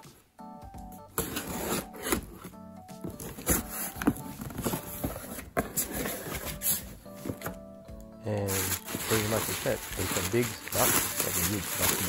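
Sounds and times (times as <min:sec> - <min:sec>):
background music: 0:00.0 - 0:12.0
cardboard scraping and rustling: 0:01.1 - 0:07.6, 0:08.4 - 0:12.0
packing tape ripping: 0:08.4 - 0:12.0.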